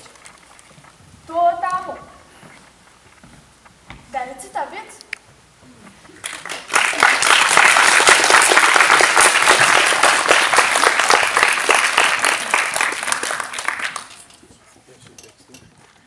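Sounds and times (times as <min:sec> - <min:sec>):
audience applauding: 0:06.2 - 0:14.4.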